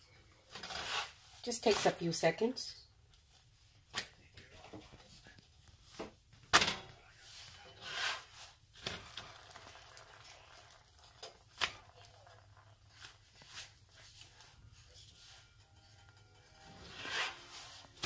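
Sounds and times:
papery tortilla rustle: 7.2 - 15.6.

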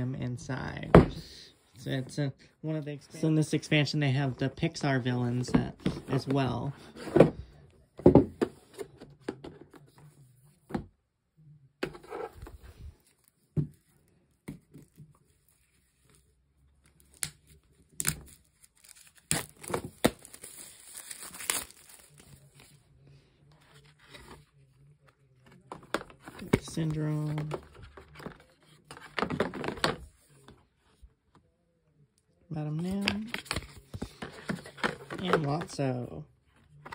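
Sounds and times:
plastic wrapping tearing and crinkling: 17.9 - 22.2.

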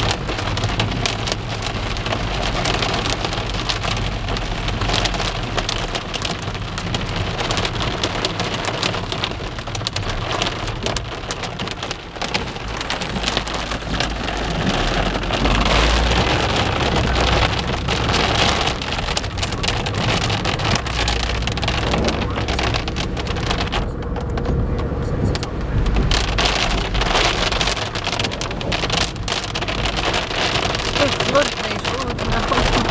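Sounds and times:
low rumble: 0.0 - 32.9
rain and hail on a car: 0.0 - 32.9.

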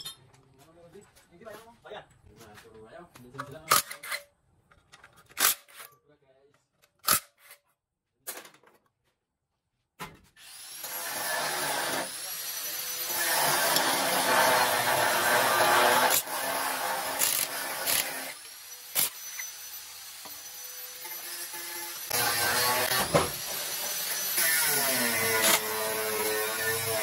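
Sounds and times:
power tool motor running: 10.4 - 27.0.

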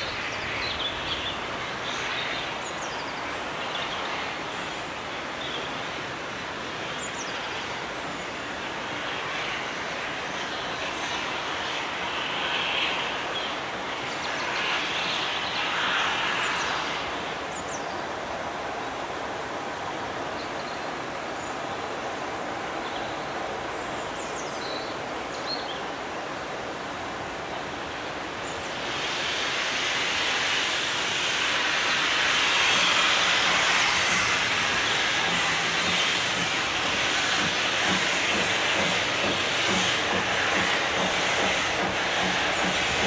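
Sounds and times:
steam locomotive chuffing: 0.0 - 17.8, 27.8 - 43.0
steady rushing noise: 0.0 - 43.0
steam locomotive hissing: 0.0 - 43.0.

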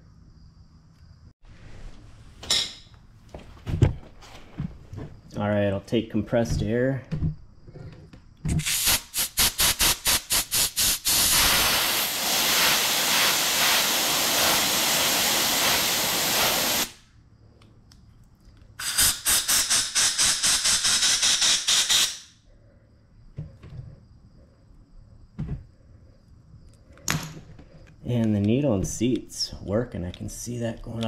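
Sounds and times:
compressed air blow gun blasting: 8.6 - 17.0, 18.8 - 22.3.

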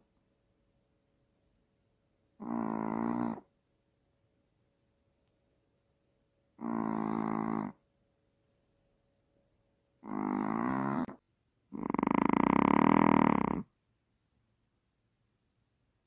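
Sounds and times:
dog snoring: 2.4 - 3.5, 6.6 - 7.8, 10.0 - 13.7.

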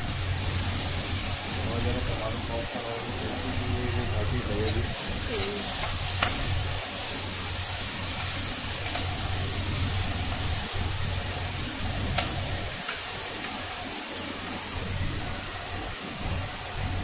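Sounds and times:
vegetables sizzling in oil: 0.0 - 17.0
spatula stirring in pan: 3.1 - 14.4
spatula clicking against pan: 8.2 - 9.1, 12.1 - 13.6.

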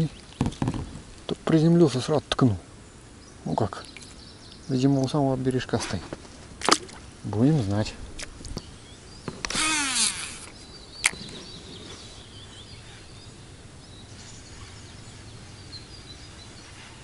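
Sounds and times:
faint birdsong: 0.0 - 17.0
reel spool whirring: 9.5 - 10.5.

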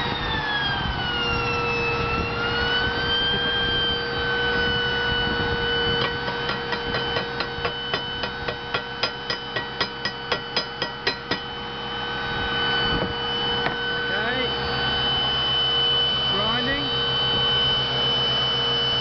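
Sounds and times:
steady machine whine: 0.0 - 19.0.

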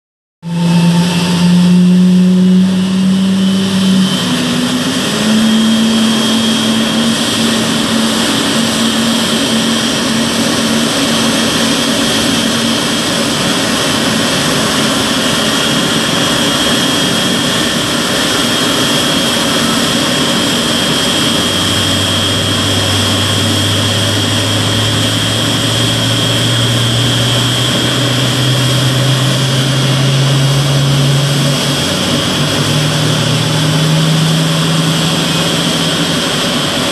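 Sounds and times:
jet engine whine and roar: 0.4 - 36.9
low hum rising in pitch: 0.4 - 36.9
thin high whine: 0.4 - 36.9.

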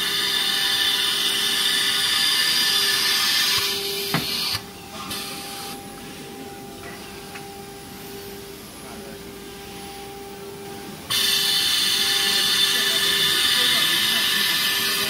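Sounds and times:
faint high whine: 0.0 - 15.0
machine hum and drone: 0.0 - 15.0.

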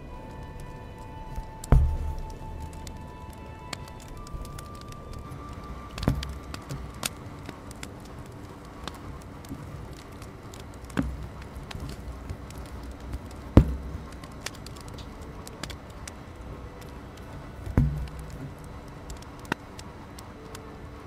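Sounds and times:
soft ticks and thumps: 0.2 - 20.6.

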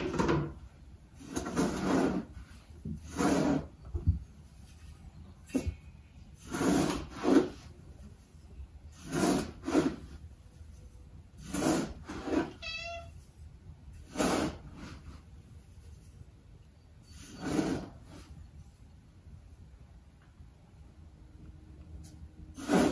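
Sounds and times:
scoop scraping through cat litter: 1.1 - 3.8, 6.3 - 16.4, 17.0 - 18.5, 22.5 - 22.9
cat meowing: 12.4 - 13.2.

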